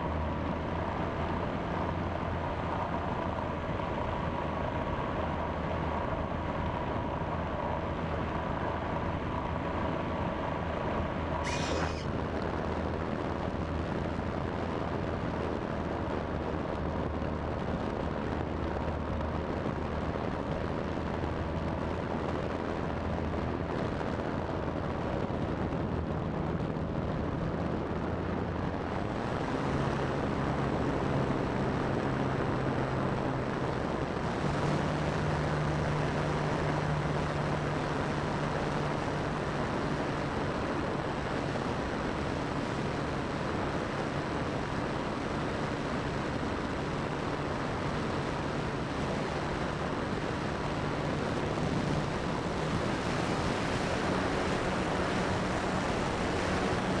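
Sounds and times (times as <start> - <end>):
wind rushing over camera: 0.0 - 57.0
electric motor and propeller whine: 11.4 - 12.2.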